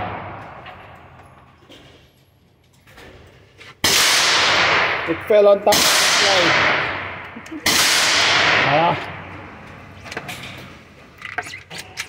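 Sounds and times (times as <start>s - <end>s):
gunshot echoing: 3.8s - 9.3s.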